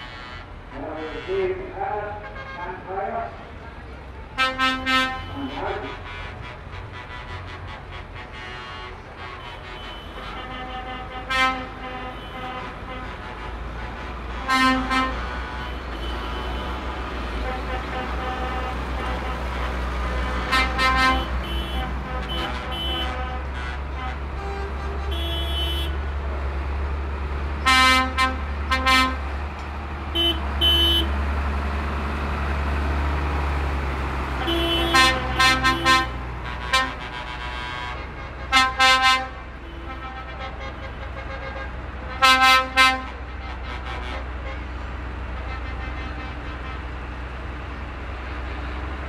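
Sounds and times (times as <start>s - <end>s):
vehicle horns tooting: 0.0s - 2.9s, 4.4s - 26.1s, 27.6s - 29.2s, 30.1s - 31.2s, 34.4s - 44.7s, 45.4s - 47.0s
tractor engines rumbling: 0.0s - 49.0s.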